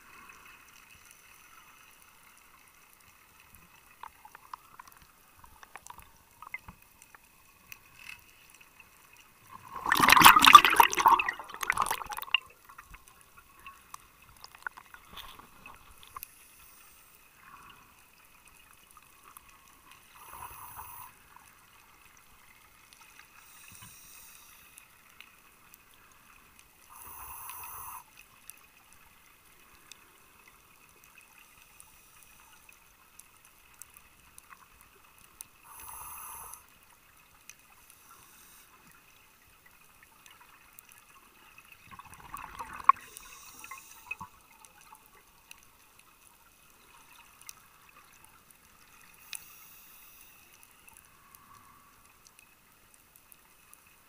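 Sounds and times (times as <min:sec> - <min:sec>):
underwater bubbles rushing: 0:09.5 - 0:13.0, 0:41.8 - 0:44.3.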